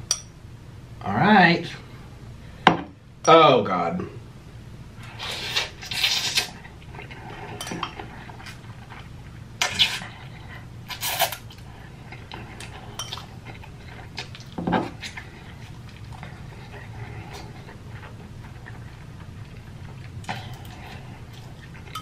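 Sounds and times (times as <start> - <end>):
chewing: 5.0 - 22.0
slurping noodles: 5.0 - 22.0.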